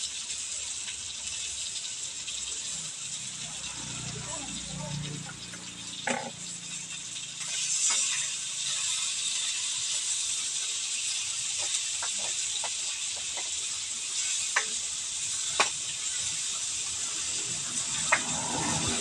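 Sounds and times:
food sizzling in a wok: 0.0 - 19.0
spatula scraping a pan: 7.4 - 14.8.

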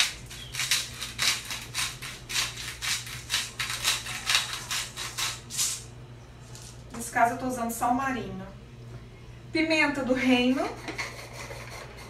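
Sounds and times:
salt grinder crunching: 0.0 - 5.8.

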